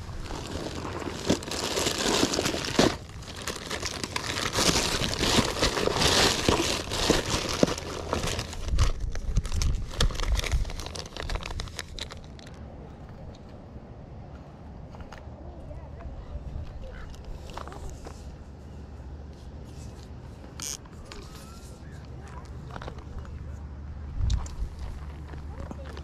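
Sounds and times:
plastic bag crinkling and rustling: 0:00.0 - 0:12.6.

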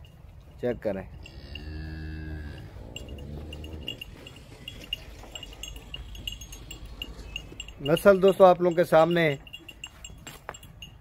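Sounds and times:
high tinkling ticks: 0:00.0 - 0:11.0
cow mooing: 0:01.2 - 0:04.5.

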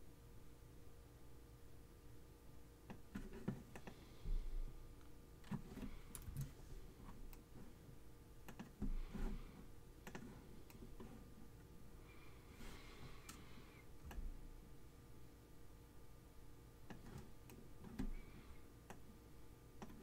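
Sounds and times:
computer mouse clicks: 0:02.9 - 0:04.0, 0:08.4 - 0:08.9, 0:10.0 - 0:10.8, 0:19.8 - 0:20.0.

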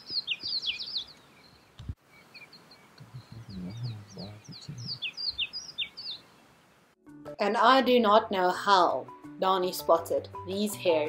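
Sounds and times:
birds chirping: 0:00.0 - 0:06.7
low muffled sounds: 0:03.0 - 0:05.0.

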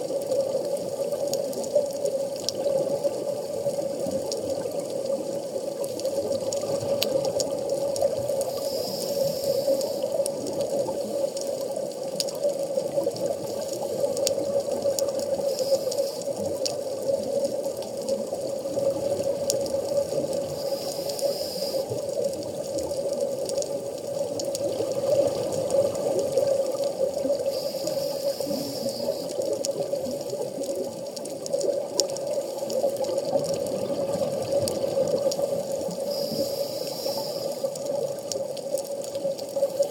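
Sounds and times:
underwater watery wash: 0:00.0 - 0:39.9
diver exhaling bubbles hiss: 0:08.2 - 0:10.2, 0:15.3 - 0:16.4, 0:20.4 - 0:22.0, 0:24.7 - 0:30.6, 0:32.6 - 0:38.1.

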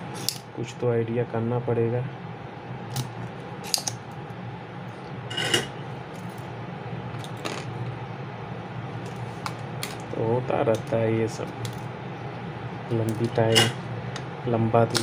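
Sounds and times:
desoldering pump snapping: 0:02.9 - 0:04.1, 0:12.9 - 0:15.0.

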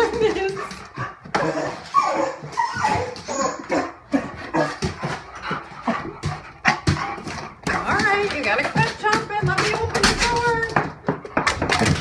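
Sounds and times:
dog whining and yelping: 0:00.0 - 0:07.1
sharp clicks and knocks: 0:04.8 - 0:12.0.

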